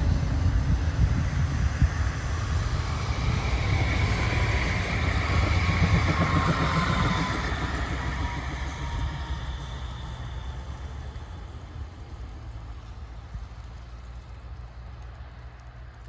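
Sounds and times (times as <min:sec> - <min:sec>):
faint high whine: 0:00.0 - 0:11.9
tram wheels rumbling on track: 0:00.0 - 0:16.0.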